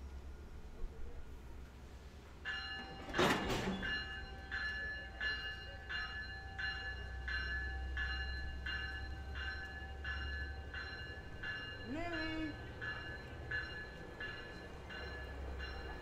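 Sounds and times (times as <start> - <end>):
train coaches rumbling past: 0.0 - 16.0
warning bell ringing: 2.4 - 16.0.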